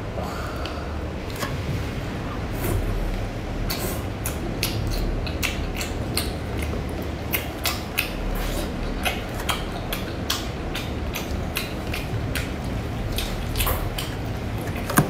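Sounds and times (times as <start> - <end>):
low background hum: 0.0 - 15.0
person chewing with wet smacks: 3.7 - 15.0.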